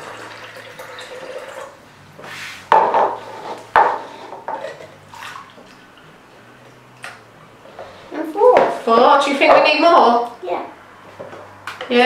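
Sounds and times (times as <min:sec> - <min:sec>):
water trickling and splashing: 0:00.0 - 0:01.8, 0:05.0 - 0:06.2.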